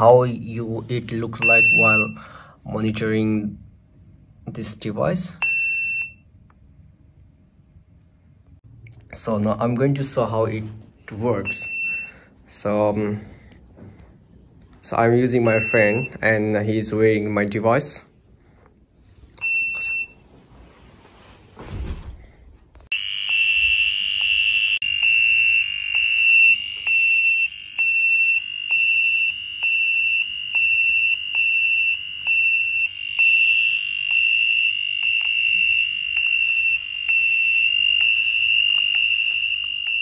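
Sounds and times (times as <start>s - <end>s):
pulsing electronic alarm beeping: 1.4s - 2.2s, 15.4s - 16.2s, 22.9s - 40.0s
rustle and bump of person falling: 20.2s - 22.8s.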